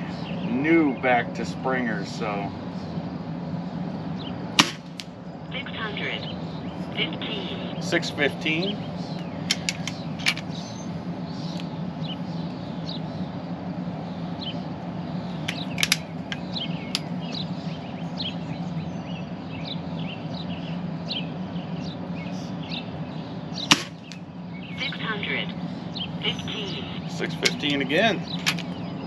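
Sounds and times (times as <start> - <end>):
birds chirping: 0.0 - 29.0
steady low hum: 0.0 - 29.0
air rifle firing crack: 4.6 - 5.0, 23.7 - 24.0.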